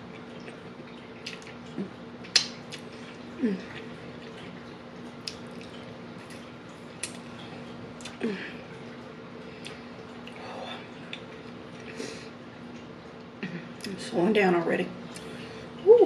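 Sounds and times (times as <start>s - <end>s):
steady low hum: 0.0s - 16.0s
person chewing: 0.1s - 4.6s, 5.2s - 7.3s
wet mouth clicks and lip smacks: 2.2s - 2.9s.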